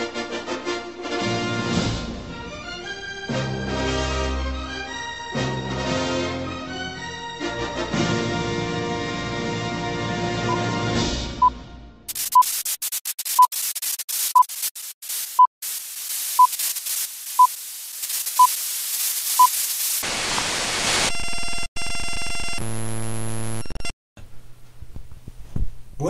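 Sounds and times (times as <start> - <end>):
old film crackle and hiss: 12.1 - 21.1
static hiss: 12.1 - 21.6
buzzing tone: 21.1 - 23.9.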